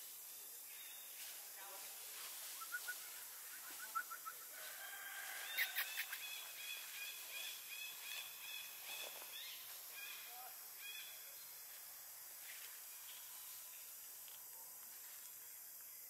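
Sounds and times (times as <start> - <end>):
bird chirping: 2.6 - 4.5, 5.5 - 11.6.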